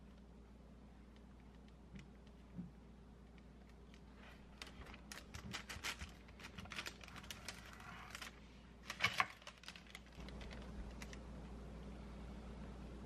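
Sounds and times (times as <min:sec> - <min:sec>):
parchment paper crackling: 0:03.2 - 0:11.6.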